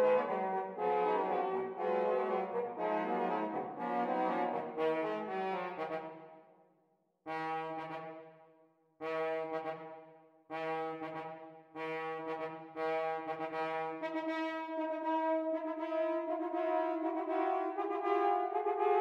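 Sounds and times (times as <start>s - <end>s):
horns repeated notes: 0.0s - 6.1s.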